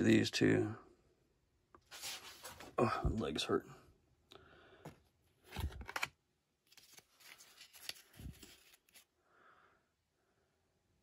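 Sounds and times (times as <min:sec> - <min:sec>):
trading cards rustling: 0:01.9 - 0:02.7, 0:05.4 - 0:09.1.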